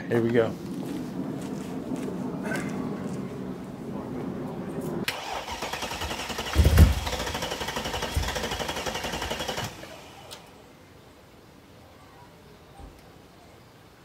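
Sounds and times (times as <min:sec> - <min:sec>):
engine firing burst: 0:05.0 - 0:10.5
car engine cranking on starter: 0:05.1 - 0:10.5.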